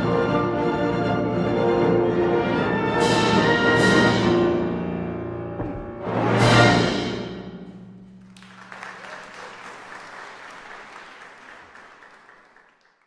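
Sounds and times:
orchestra with piano: 0.0s - 11.9s
audience applauding: 8.2s - 13.0s.

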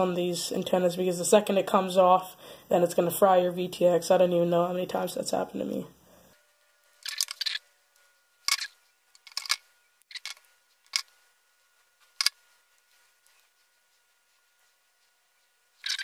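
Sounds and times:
small parts clicking on workbench: 7.0s - 7.6s, 8.5s - 11.1s.

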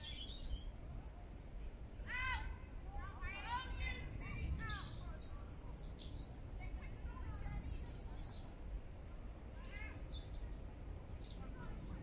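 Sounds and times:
songbirds singing: 0.0s - 0.8s, 3.4s - 8.6s, 9.6s - 12.0s.

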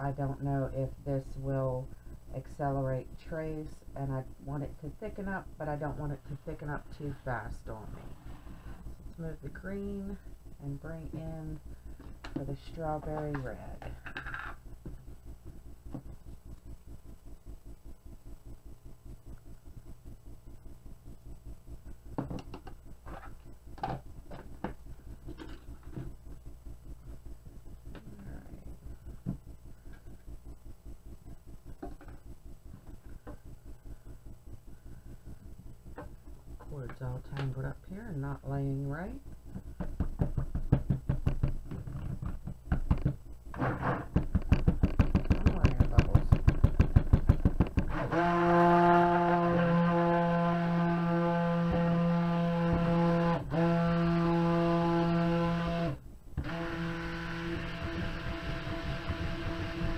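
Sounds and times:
steady low hum: 0.0s - 59.9s
stick blender pulsing: 43.6s - 59.9s.

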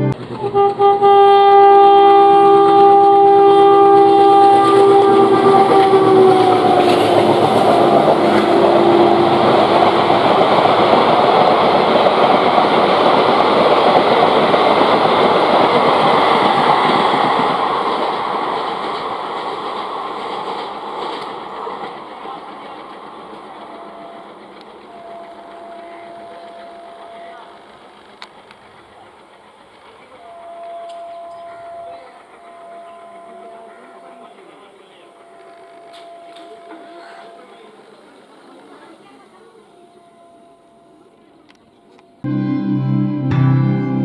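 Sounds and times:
train horn long blast: 0.0s - 10.9s, 23.4s - 27.6s, 30.1s - 37.5s
train coaches clattering on rails: 0.1s - 42.3s.

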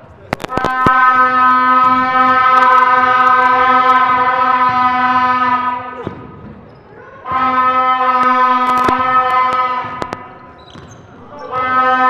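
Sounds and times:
horn blasts: 0.4s - 6.2s, 7.2s - 12.0s
basketball bouncing on court: 6.0s - 7.5s, 8.2s - 11.7s.

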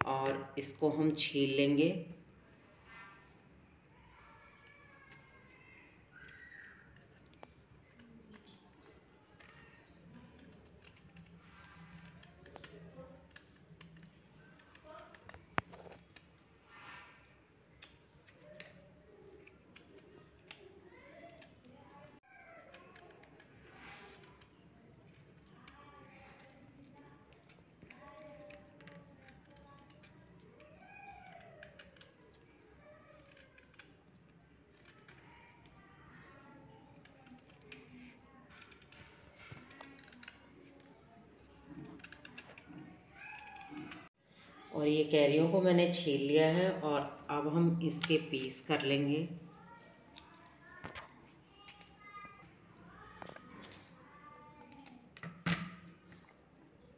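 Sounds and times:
knife shaving mango peel: 3.9s - 44.2s.

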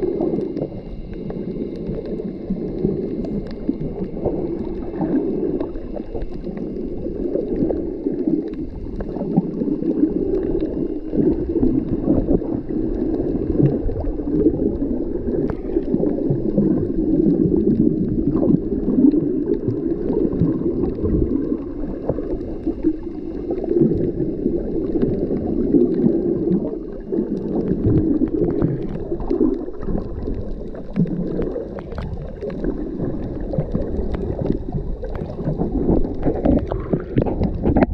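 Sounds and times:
underwater water rush: 0.0s - 37.9s
water gurgling: 0.0s - 37.9s
faint clicks: 0.2s - 5.0s.

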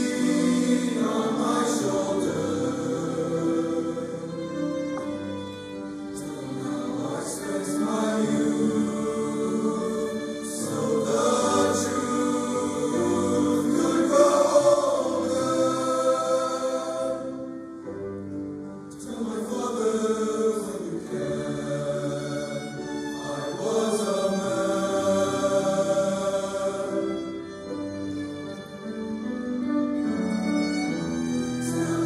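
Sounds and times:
male choir singing: 0.0s - 4.8s, 6.1s - 17.9s, 18.9s - 27.5s, 31.6s - 32.0s
piano: 0.0s - 32.0s
violin: 0.0s - 32.0s.

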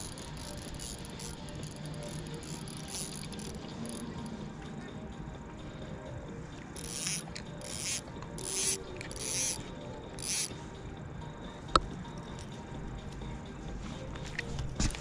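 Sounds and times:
sharp reel click: 0.0s - 4.1s, 6.8s - 9.6s, 10.2s - 10.5s
fishing reel whirring: 0.0s - 4.3s, 6.8s - 10.6s.

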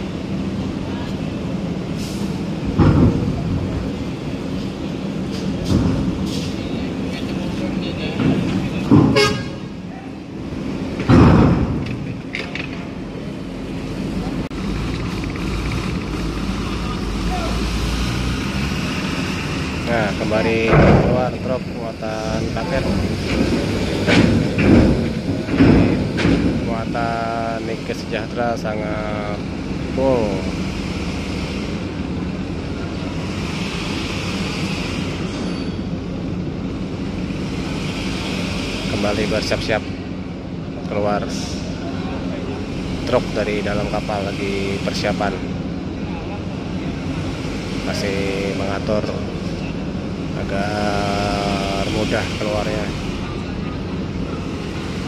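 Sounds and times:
diesel truck engines rumbling: 0.0s - 55.0s
heavy thump: 11.0s - 12.0s.

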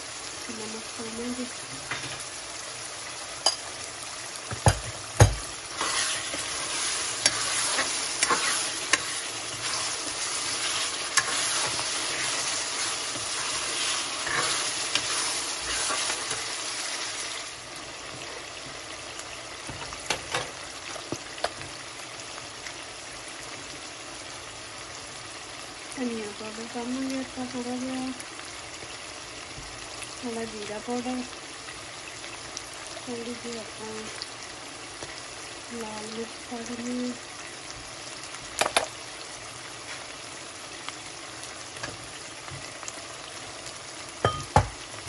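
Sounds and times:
vegetables sizzling in a pan: 0.0s - 45.0s
ladle stirring and scraping: 5.7s - 17.4s.

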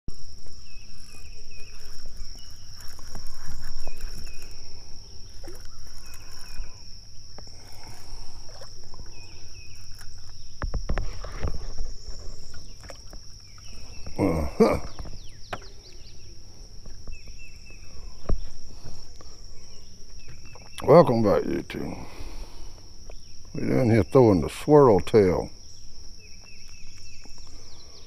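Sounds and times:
insects droning: 0.1s - 28.0s
bird chirps: 0.3s - 10.6s, 11.3s - 22.2s, 25.2s - 28.0s.

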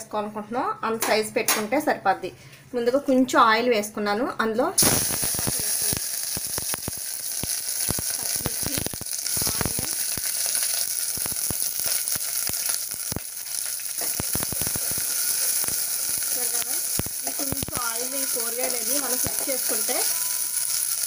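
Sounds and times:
food sizzling in hot oil: 4.8s - 21.0s.

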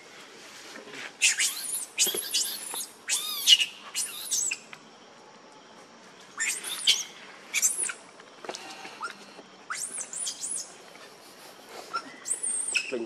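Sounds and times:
infant monkey squealing: 1.2s - 4.6s, 6.4s - 8.0s, 9.0s - 10.7s, 11.9s - 13.0s.

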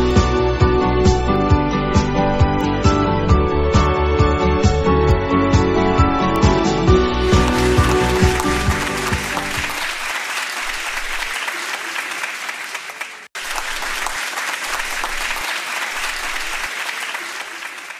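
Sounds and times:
crowd applauding: 7.0s - 17.9s.

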